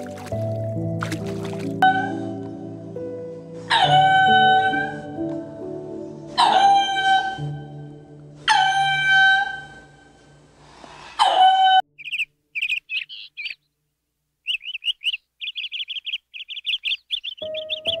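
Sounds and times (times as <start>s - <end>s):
high bird chirps: 12.0s - 13.8s, 14.4s - 18.0s.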